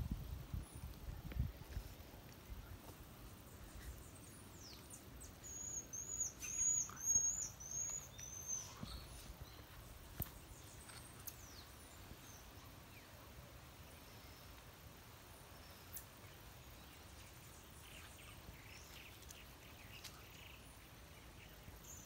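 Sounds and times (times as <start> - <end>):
high-pitched chirping calls: 5.3 - 9.3.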